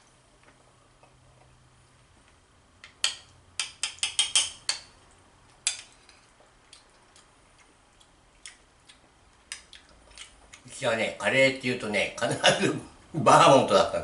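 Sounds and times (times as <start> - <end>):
metal spoon clinking on plate: 3.0 - 4.8.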